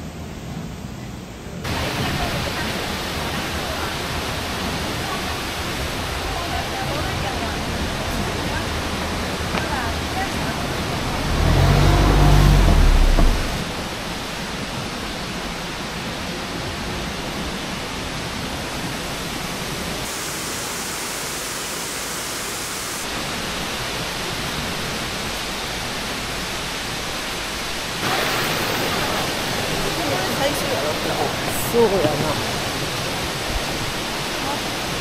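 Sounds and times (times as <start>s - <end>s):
waterfall rushing: 1.6s - 35.0s
loud low rumble: 10.6s - 14.1s.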